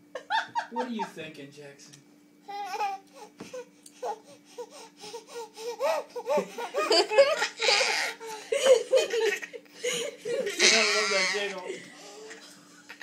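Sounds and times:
baby giggling: 0:05.3 - 0:11.6.

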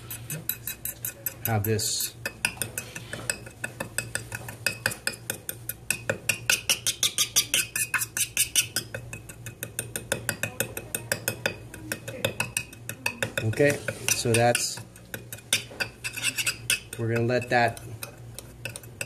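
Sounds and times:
metal instrument scraping steel bowl: 0:00.0 - 0:02.1, 0:06.8 - 0:08.8, 0:13.4 - 0:17.8.

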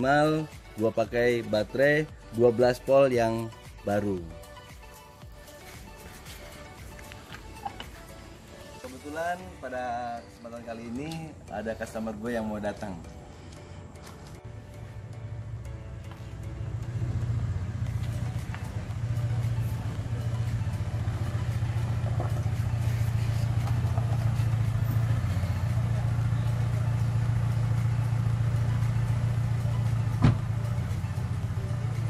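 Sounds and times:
car engine idling: 0:13.1 - 0:32.0.

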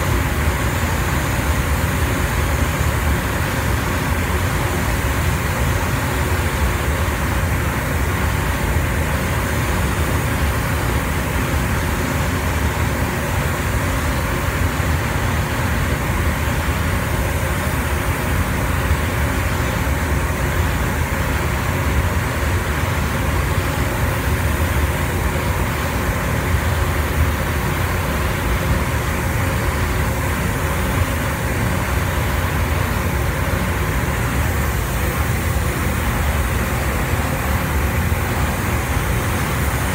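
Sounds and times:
booth airflow rush: 0:00.0 - 0:39.9
spray gun hissing: 0:25.4 - 0:39.9.

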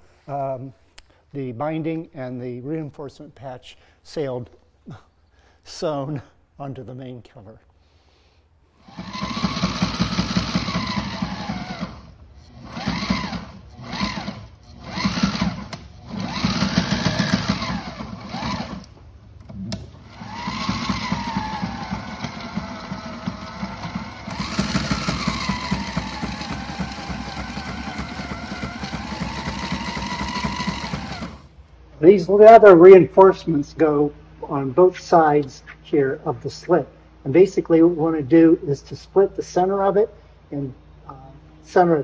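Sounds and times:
sewing machine stitching: 0:08.8 - 0:31.5.

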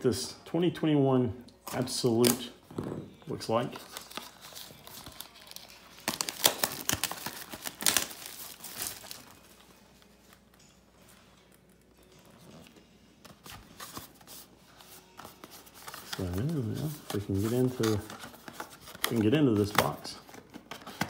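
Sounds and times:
plastic wrapping tearing and crinkling: 0:03.7 - 0:10.4, 0:15.2 - 0:21.0.

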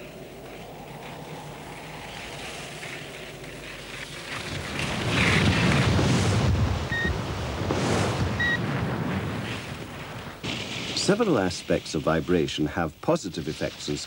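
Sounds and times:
wind-like rushing noise: 0:00.0 - 0:10.4.

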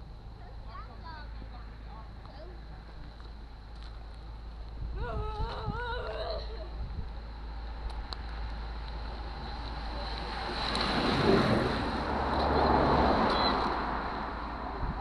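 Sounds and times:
wind on microphone: 0:04.7 - 0:07.2, 0:10.2 - 0:15.0
cyclists rushing past: 0:06.7 - 0:15.0.

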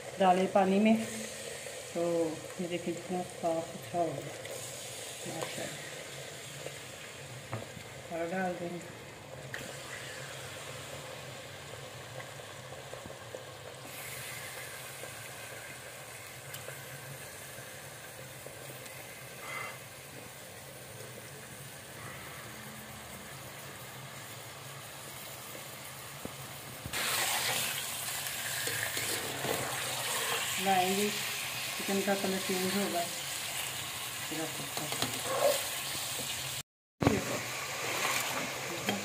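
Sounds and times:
chicken sizzling in hot oil: 0:00.0 - 0:39.0
spatula stirring in oil: 0:26.9 - 0:30.6.

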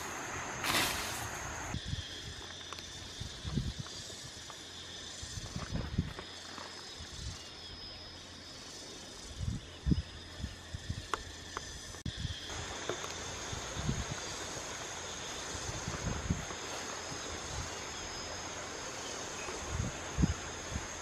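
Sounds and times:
hands working soil: 0:00.0 - 0:01.8
high-pitched insect calls: 0:00.0 - 0:21.0.

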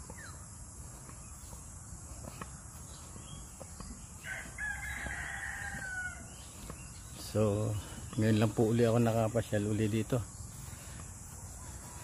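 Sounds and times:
drone of insects: 0:00.0 - 0:12.0
rooster crowing: 0:04.2 - 0:06.5.

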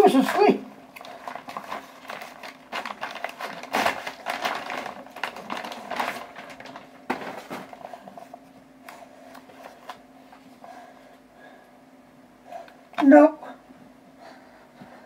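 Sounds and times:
faint steady hum: 0:00.0 - 0:15.0
cardboard envelope rustling: 0:01.0 - 0:08.5.

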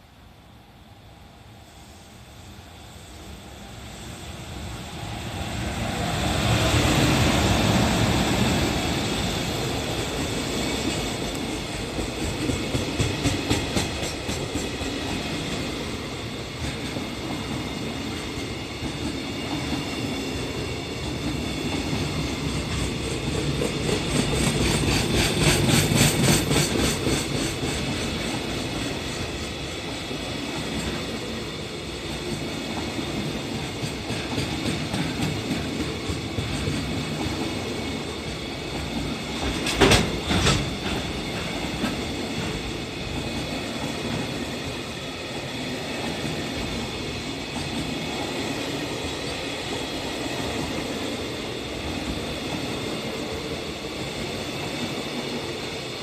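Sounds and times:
electric locomotive passing: 0:00.0 - 0:56.0
wheels clacking over rail joints: 0:38.7 - 0:44.3.

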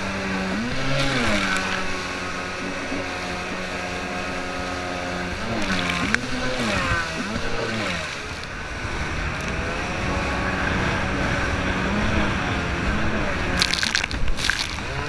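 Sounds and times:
jet ski engine revving: 0:00.0 - 0:15.0
water spray: 0:13.6 - 0:15.0.

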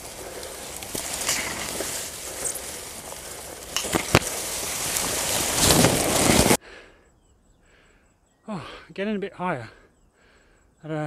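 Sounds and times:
grass rustling against microphone: 0:00.0 - 0:06.6
sharp cracks: 0:00.0 - 0:06.6.

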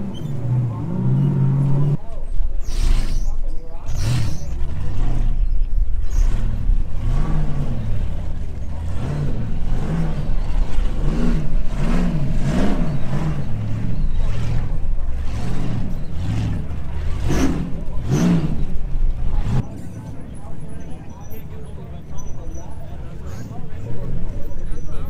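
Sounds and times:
vehicle engine revving: 0:00.0 - 0:25.0.

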